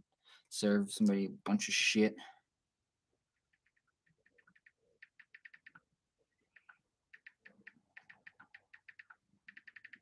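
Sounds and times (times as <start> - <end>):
faint keyboard typing: 3.3 - 10.0.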